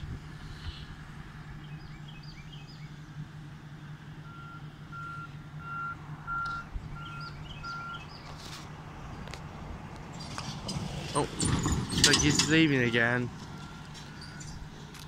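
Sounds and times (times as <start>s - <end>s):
truck backup alarm beeping: 4.2s - 8.2s, 11.4s - 14.9s.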